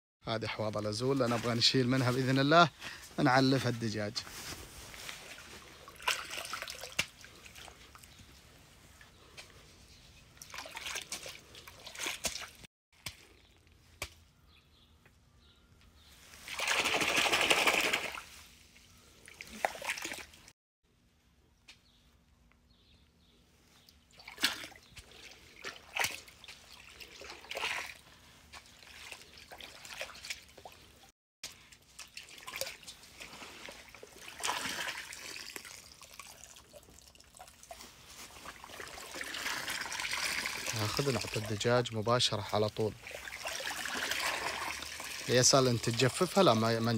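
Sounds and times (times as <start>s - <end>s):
water pouring into pond: 5.0s - 8.1s, 10.4s - 12.7s, 16.4s - 18.4s, 19.2s - 20.5s, 24.1s - 31.0s, 31.7s - 41.8s, 42.4s - 46.9s.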